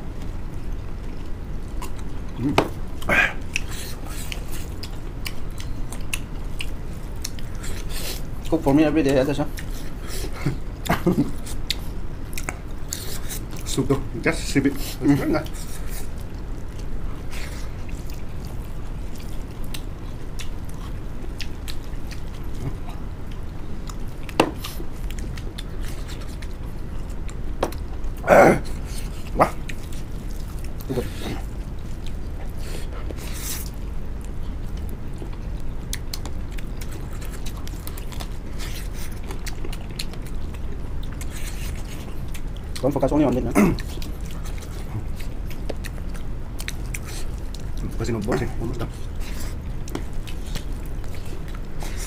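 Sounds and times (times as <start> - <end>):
steady low hum: 0.0 - 52.0
chewing and lip smacks: 0.1 - 52.0
short vocal sound: 28.2 - 28.7.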